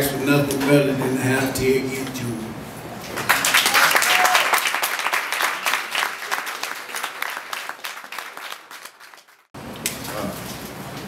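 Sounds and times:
audience applauding: 0:03.1 - 0:09.5.

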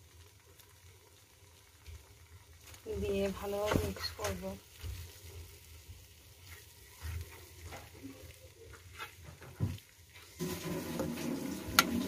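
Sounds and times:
gravy sizzling: 0:00.0 - 0:12.0
spatula scraping a pan: 0:08.7 - 0:12.0.

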